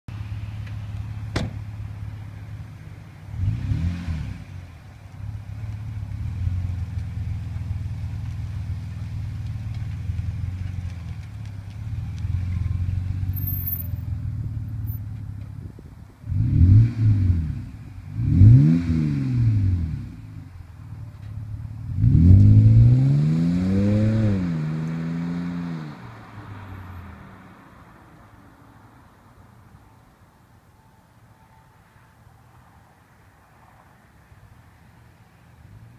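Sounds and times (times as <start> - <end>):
car door shutting: 1.3 - 1.7
engine revving: 3.3 - 4.5, 16.3 - 20.1, 21.9 - 26.1
car accelerating away: 3.3 - 4.6, 16.2 - 20.5, 21.8 - 28.4.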